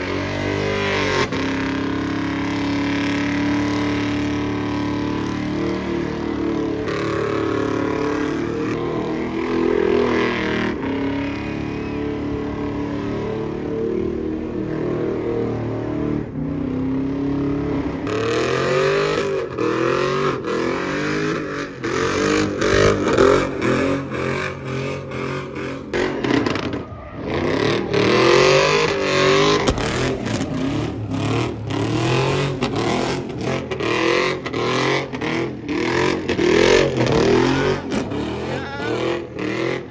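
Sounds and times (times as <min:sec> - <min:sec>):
truck engine revving: 0:00.0 - 0:39.9.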